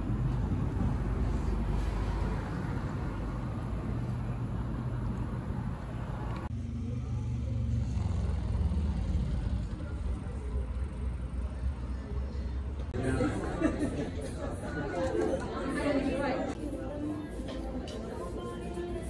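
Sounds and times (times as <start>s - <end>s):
cars driving past: 0.0s - 13.0s.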